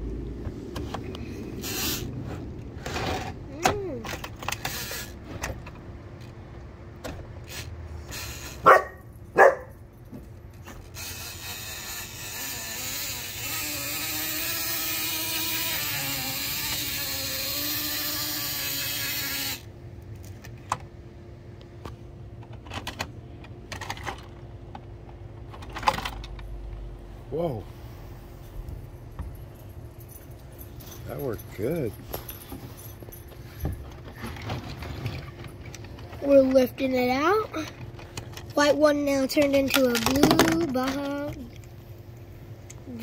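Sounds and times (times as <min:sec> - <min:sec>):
steady whirring hiss: 0:00.0 - 0:06.3, 0:10.6 - 0:22.0
plastic toy clicks and knocks: 0:22.5 - 0:24.3, 0:25.4 - 0:26.4, 0:39.4 - 0:41.4.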